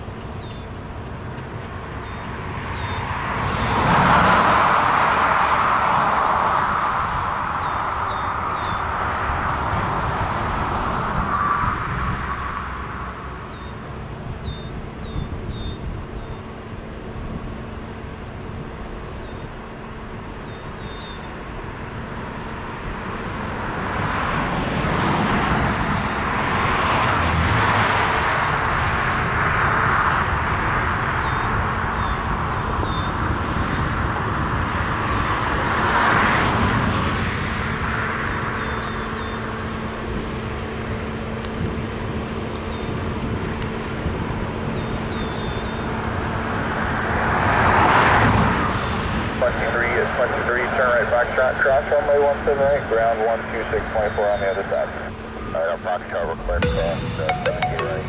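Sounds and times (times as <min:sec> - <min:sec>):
jet engine rushing: 0:46.5 - 0:58.0.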